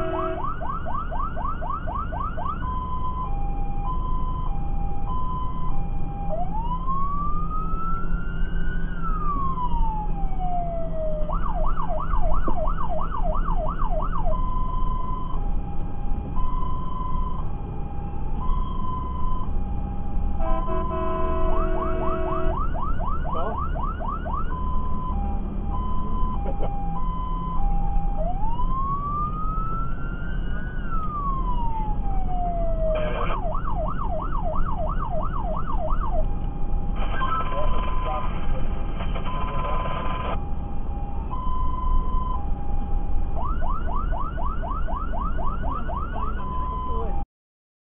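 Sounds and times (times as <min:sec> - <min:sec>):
multi-tone horn blast: 0:00.0 - 0:00.6, 0:20.4 - 0:22.6
engine and road rumble: 0:00.0 - 0:47.2
fire engine siren: 0:00.0 - 0:47.2.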